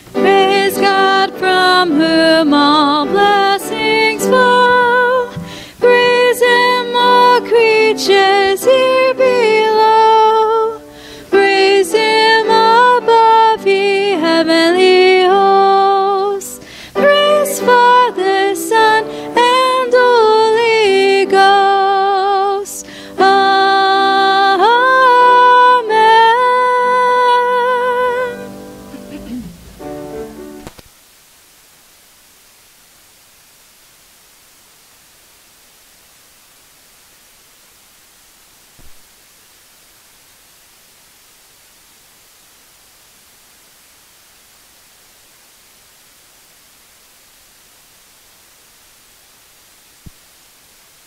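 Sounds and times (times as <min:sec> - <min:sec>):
woman singing with vibrato: 0:00.1 - 0:29.6.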